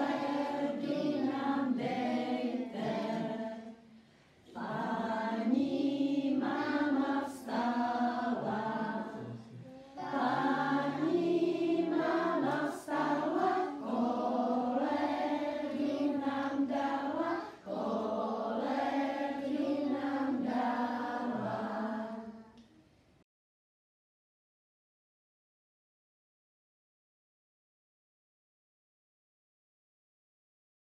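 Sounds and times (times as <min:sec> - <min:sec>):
young children singing: 0:00.0 - 0:22.6.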